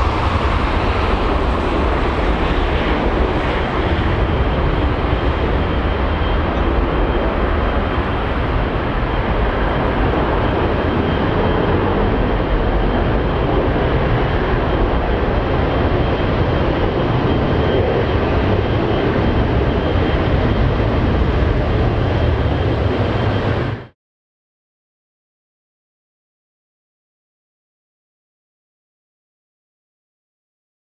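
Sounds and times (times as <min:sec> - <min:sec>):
jet engines roaring: 0:00.0 - 0:24.0.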